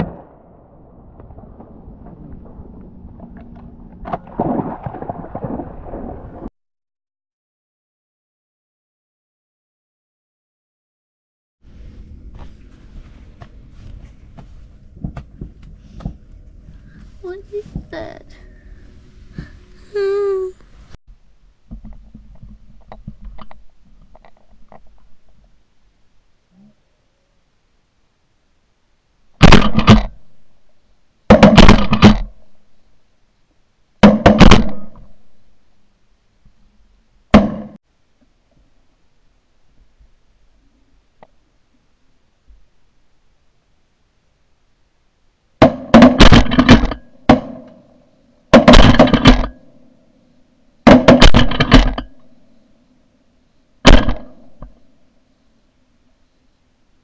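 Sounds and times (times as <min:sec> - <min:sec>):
faint low rumble: 0:00.0 - 0:06.5, 0:11.6 - 0:29.5
soft low bumps: 0:11.6 - 0:25.6
shotguns firing: 0:45.6 - 0:47.7, 0:48.5 - 0:49.6, 0:50.9 - 0:52.0, 0:53.9 - 0:54.4.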